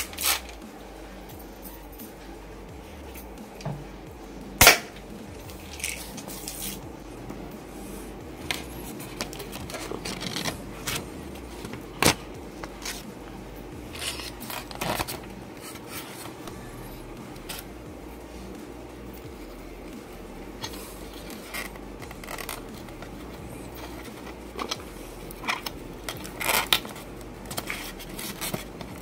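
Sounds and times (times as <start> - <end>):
toy gun firing snap: 4.6 - 4.9
paper and foam rustling: 5.4 - 18.5, 20.0 - 29.0.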